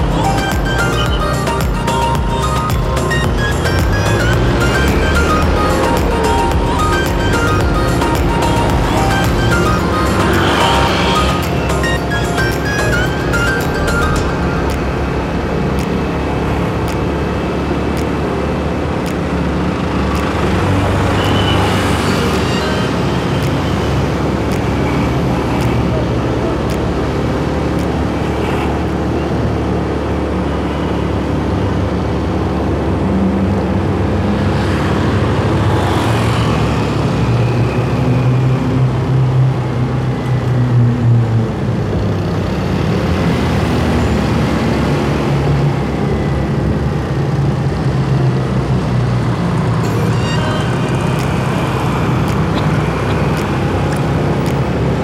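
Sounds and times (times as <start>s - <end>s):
motorcycle engine humming: 0.0s - 37.7s
vehicles passing: 0.0s - 55.0s
wind and road noise: 0.0s - 55.0s.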